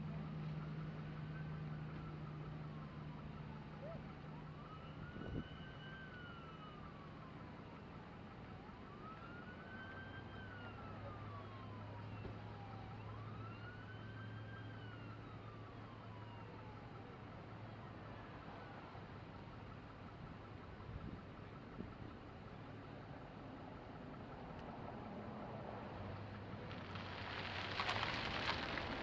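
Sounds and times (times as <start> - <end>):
emergency siren wailing: 0.1 - 21.9.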